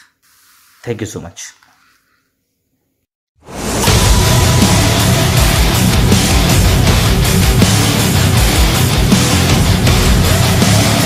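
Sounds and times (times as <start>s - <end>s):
heavy rock music: 3.5s - 11.0s.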